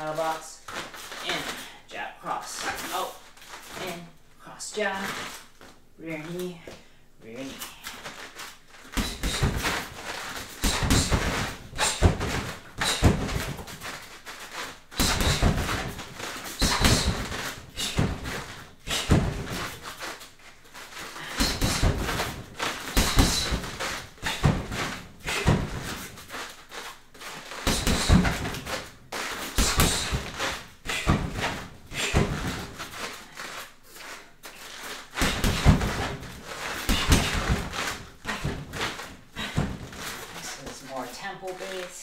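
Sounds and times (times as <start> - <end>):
bare feet stepping on foam mats: 7.8 - 42.0
punches thudding on heavy bag: 8.9 - 20.1, 21.2 - 26.4, 27.4 - 33.6, 35.1 - 40.4.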